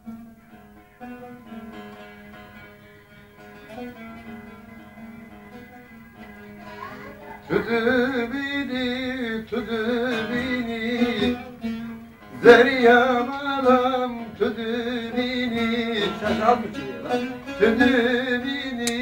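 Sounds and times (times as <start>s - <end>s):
held stringed instrument note: 0.0s - 18.2s
man singing melismatic song: 7.4s - 19.0s.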